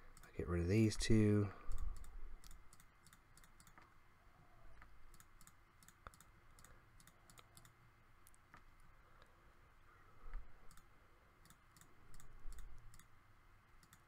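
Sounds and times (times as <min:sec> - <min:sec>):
faint computer mouse clicks: 0:01.7 - 0:03.9, 0:04.8 - 0:08.9, 0:10.3 - 0:13.1, 0:13.8 - 0:14.0.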